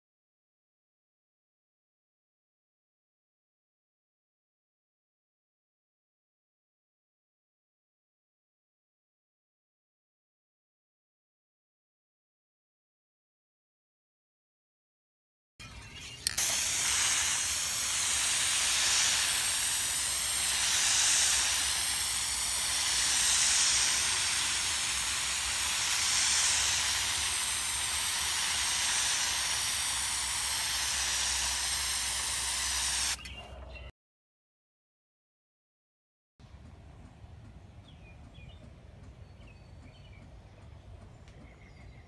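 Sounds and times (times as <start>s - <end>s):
spray paint can hissing: 16.2s - 33.3s.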